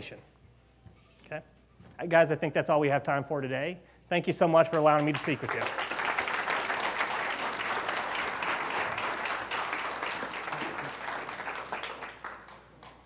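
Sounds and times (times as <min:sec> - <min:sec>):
audience applauding: 0:04.7 - 0:13.0.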